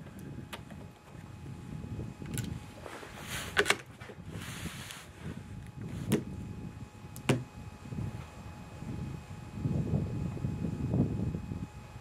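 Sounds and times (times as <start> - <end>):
short rustle: 2.6 - 6.2.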